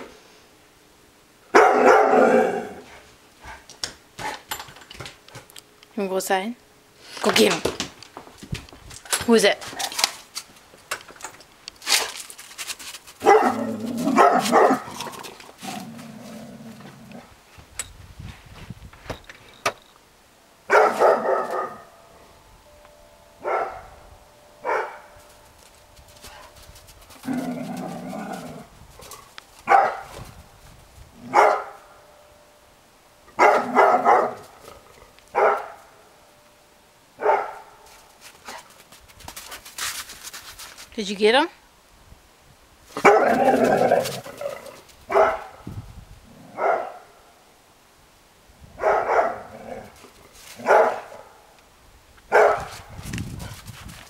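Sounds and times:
dog snarl-barking: 1.6 - 2.8, 13.2 - 15.1, 20.7 - 21.8, 43.0 - 45.5, 48.8 - 49.9, 52.3 - 52.7.

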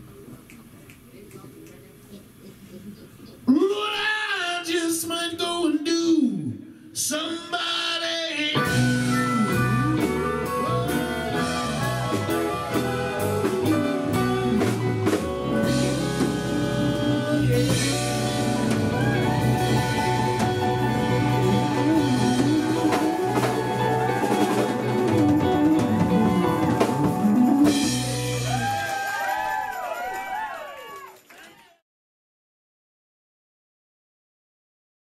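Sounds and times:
person singing blues: 3.4 - 28.6
electric guitar: 8.5 - 29.4
bass guitar: 8.6 - 29.0
drum kit: 8.6 - 29.7.

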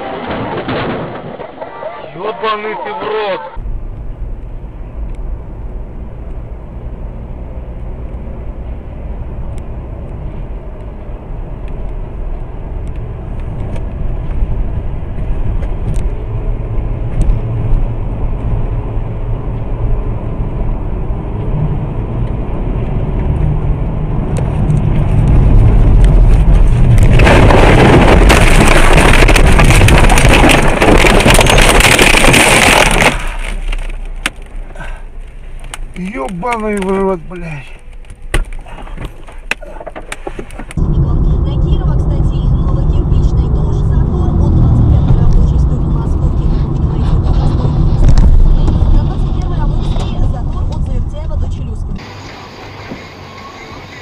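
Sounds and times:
car crash roar: 0.0 - 2.3, 24.2 - 35.2
road and engine rumble: 0.0 - 54.0.

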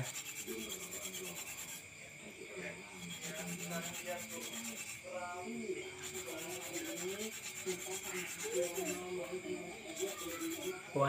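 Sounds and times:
metal barrel rubbing rasp: 0.0 - 2.0, 2.7 - 11.0.

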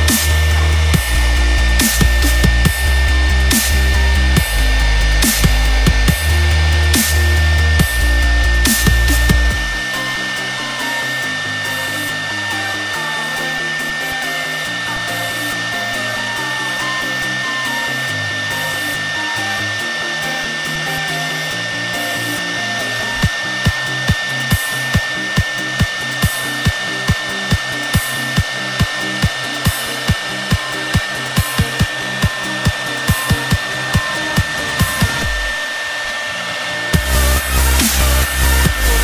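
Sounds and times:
low bass line: 0.0 - 10.8, 32.6 - 35.6, 37.0 - 39.0
router spindle high whine: 0.0 - 39.0.

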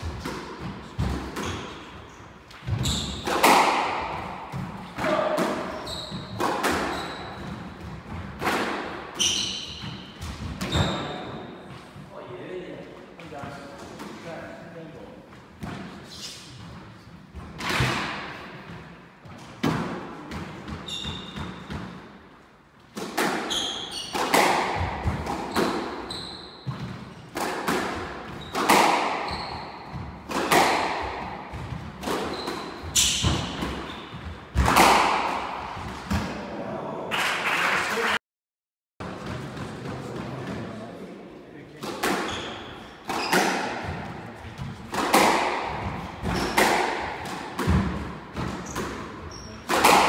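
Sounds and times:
squash ball striking racket and wall: 0.0 - 12.1, 15.4 - 36.5, 39.0 - 40.7, 41.8 - 50.0
shoe squeaks on wooden floor: 1.4 - 3.3, 5.6 - 7.5, 9.2 - 11.3, 20.8 - 21.7, 23.4 - 24.2, 25.5 - 26.9, 28.3 - 28.6, 29.2 - 30.0, 32.2 - 34.3, 42.2 - 43.5, 48.6 - 49.7.

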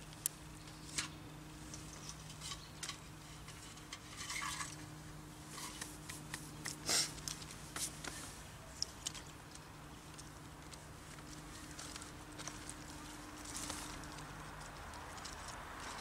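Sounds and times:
hands handling dry twigs: 5.5 - 16.0.

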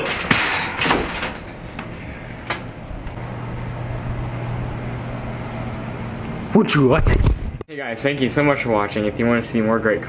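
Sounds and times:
steady low machine hum: 0.1 - 7.6.

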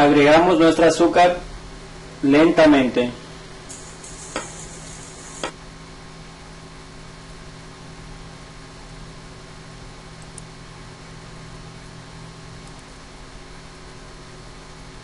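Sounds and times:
high hiss: 3.7 - 5.6
light clicks: 10.2 - 10.5.

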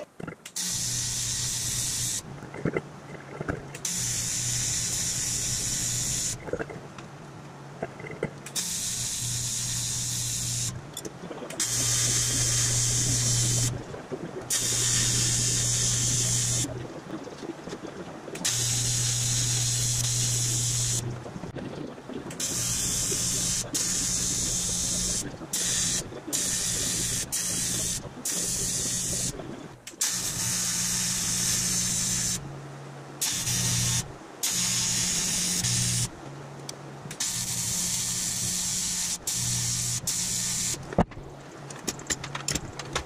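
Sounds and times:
tig welder arc buzzing: 8.6 - 10.8, 18.4 - 21.0, 33.2 - 36.1, 37.2 - 40.8.

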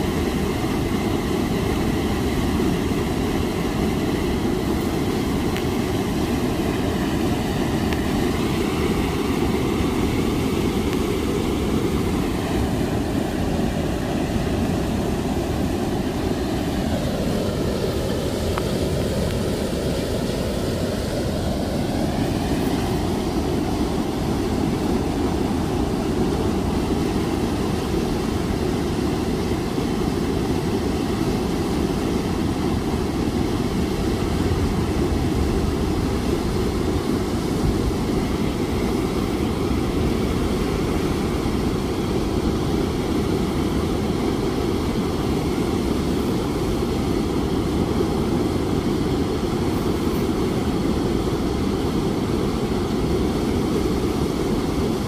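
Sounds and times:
low rumbling noise: 32.3 - 42.7.

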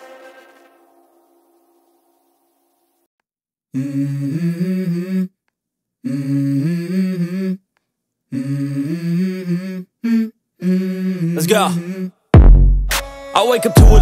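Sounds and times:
person humming melody: 3.7 - 5.4, 6.0 - 7.6, 8.3 - 12.2.

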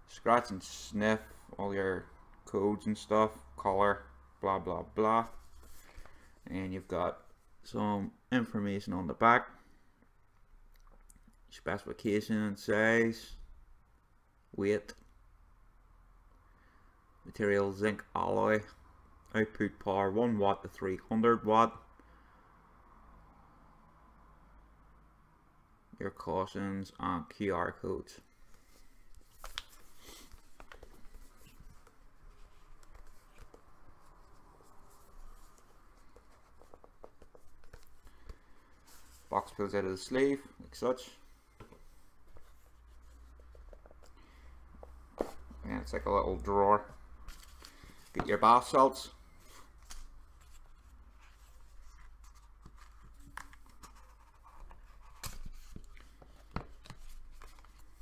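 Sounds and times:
faint cardboard scraping: 28.6 - 39.5, 49.4 - 58.0.

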